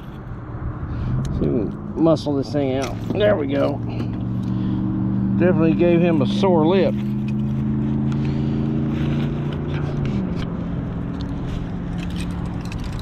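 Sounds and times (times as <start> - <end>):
vehicle engine droning: 0.0 - 13.0.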